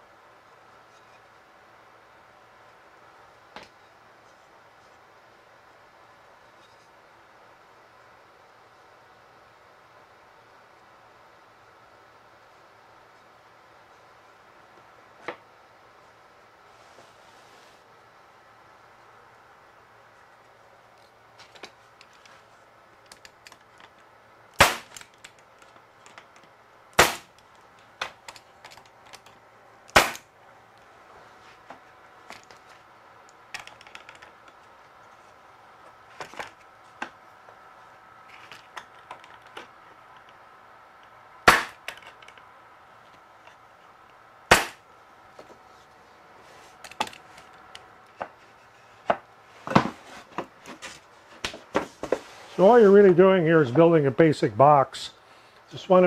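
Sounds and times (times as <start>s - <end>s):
pneumatic stapler firing: 24.6s - 25.1s, 27.0s - 27.3s, 29.9s - 30.2s, 41.5s - 41.9s, 44.5s - 44.8s.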